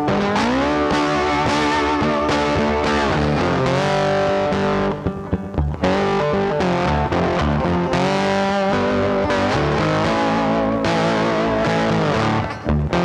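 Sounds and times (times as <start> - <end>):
guitar music with sliding notes: 0.0 - 13.0.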